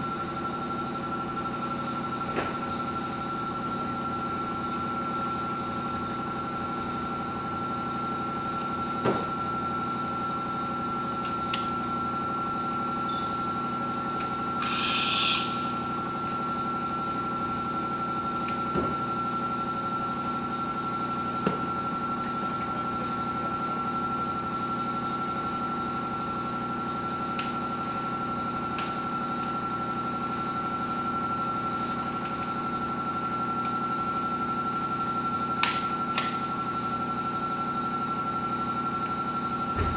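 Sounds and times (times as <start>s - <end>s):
machine hum with high whine: 0.0s - 39.9s
short hiss: 14.6s - 15.6s.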